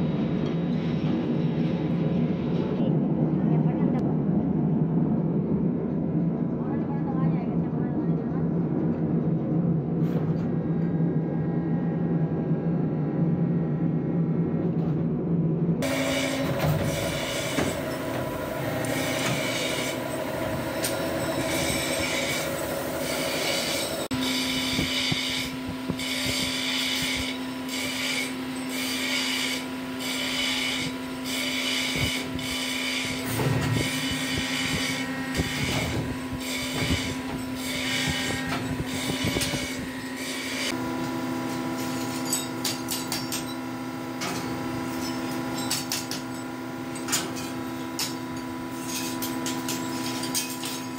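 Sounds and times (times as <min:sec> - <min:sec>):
die-casting machine hydraulic hum: 0:15.8 - 0:50.9
noisy machine pulse: 0:15.8 - 0:50.9.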